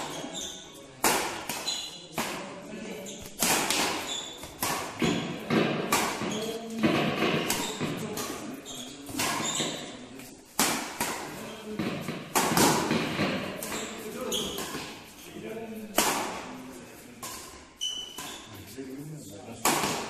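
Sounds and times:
rackets hitting shuttlecock: 0:01.0 - 0:02.5, 0:03.2 - 0:15.1, 0:15.9 - 0:16.6, 0:19.6 - 0:20.0.

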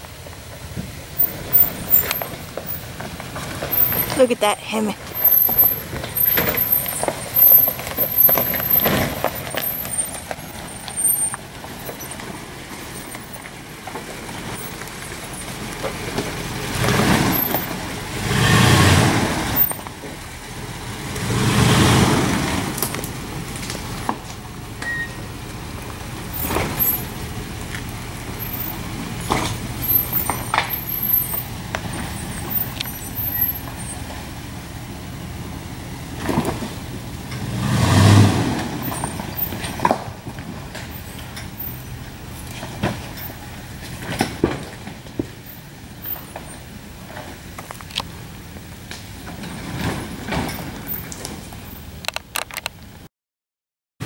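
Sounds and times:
pickup truck engine: 0:00.0 - 0:53.1
tyres knocking over rocks: 0:00.6 - 0:04.4, 0:05.0 - 0:18.0, 0:25.5 - 0:34.3, 0:36.1 - 0:37.5, 0:38.3 - 0:48.2.

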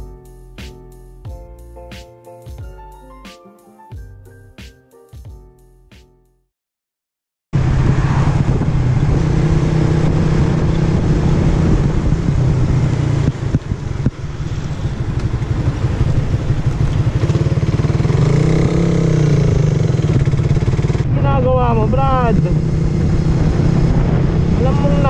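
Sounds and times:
motorcycle engine running: 0:08.5 - 0:21.2.

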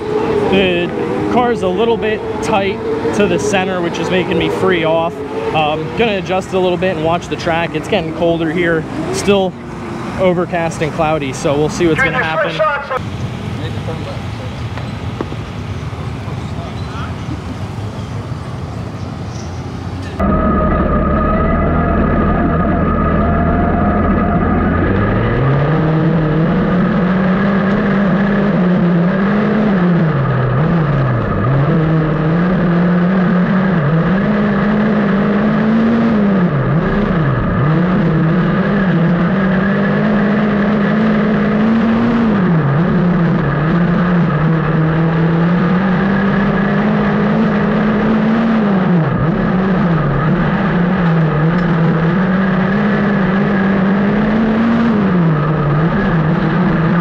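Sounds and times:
race car engine at speed: 0:00.0 - 0:57.0.

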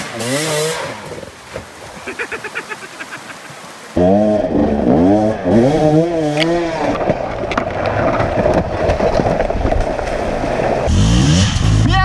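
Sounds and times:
dirt bike engine revving: 0:00.0 - 0:01.4, 0:03.9 - 0:08.8, 0:10.4 - 0:12.0
rushing water: 0:00.0 - 0:11.0.

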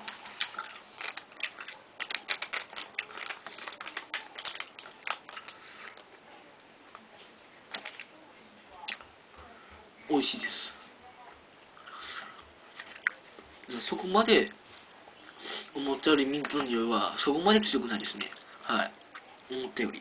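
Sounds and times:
gum wrapper crinkling: 0:00.0 - 0:06.2.

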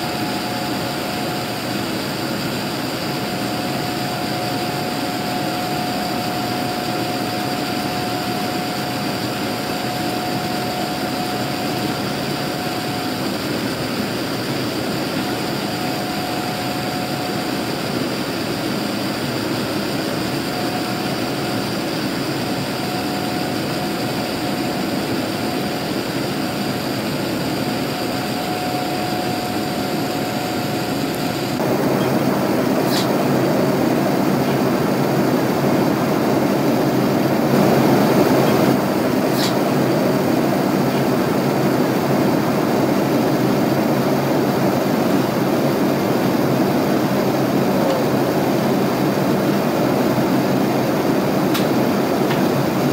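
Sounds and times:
jet engine cabin noise: 0:00.0 - 0:52.9.

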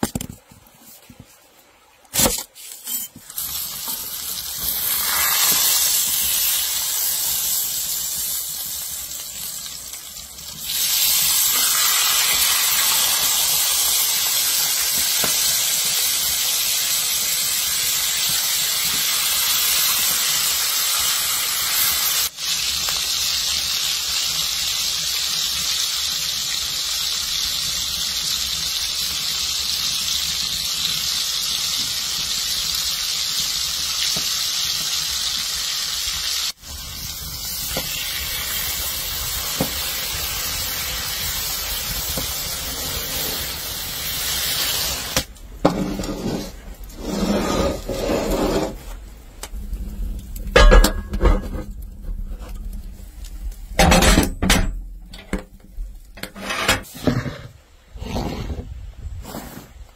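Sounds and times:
meat sizzling in a skillet: 0:02.9 - 0:48.9.

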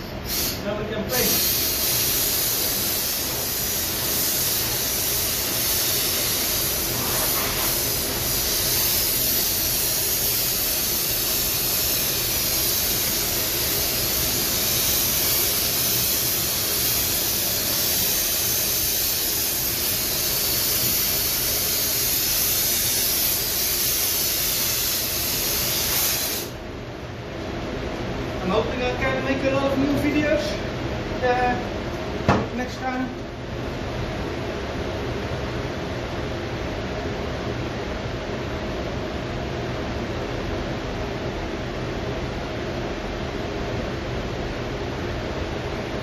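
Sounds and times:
compressed air blow gun hissing: 0:00.2 - 0:26.6.

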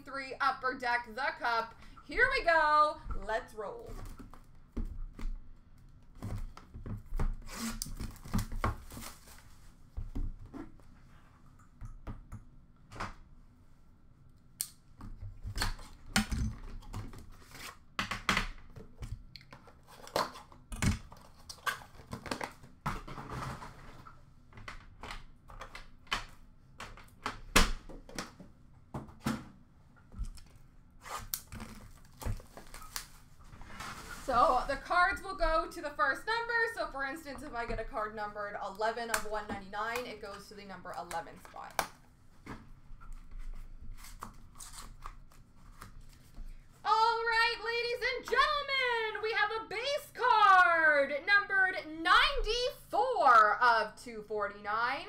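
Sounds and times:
wrapping tearing and crinkling: 0:31.0 - 0:34.4, 0:43.9 - 0:46.3
rustling: 0:31.0 - 0:35.0.

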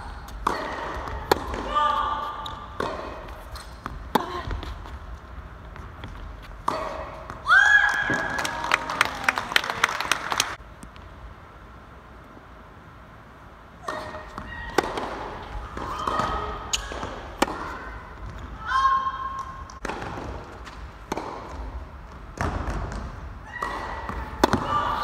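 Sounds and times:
rackets striking tennis ball: 0:00.0 - 0:08.4, 0:13.8 - 0:25.0
tennis ball bouncing on court: 0:00.2 - 0:08.4, 0:13.8 - 0:25.0.

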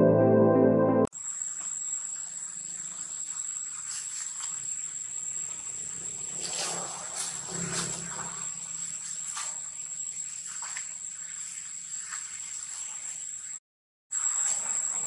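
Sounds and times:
high-pitched insect drone: 0:01.1 - 0:15.0.

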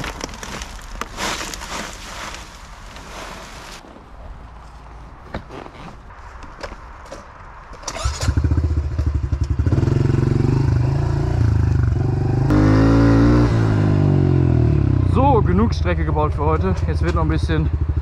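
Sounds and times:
motorbike engine starting and running: 0:07.7 - 0:14.9.

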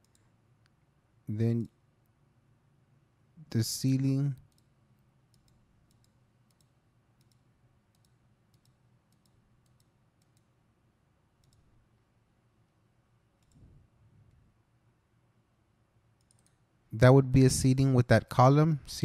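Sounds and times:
computer mouse clicks: 0:00.0 - 0:00.8, 0:04.4 - 0:04.7, 0:05.3 - 0:10.5, 0:11.4 - 0:11.7, 0:13.4 - 0:13.8, 0:16.2 - 0:16.6.

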